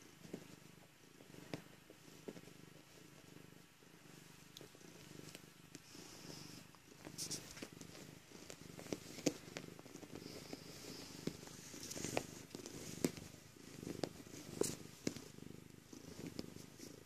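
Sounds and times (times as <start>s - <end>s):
cat purring: 0.0s - 17.0s
clicks and rustles of bedding: 7.0s - 15.4s.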